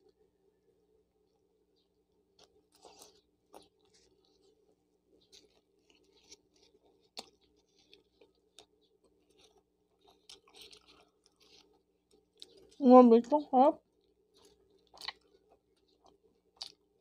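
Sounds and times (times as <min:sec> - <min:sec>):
chewing mouth sounds: 0:05.2 - 0:12.8, 0:14.3 - 0:16.9.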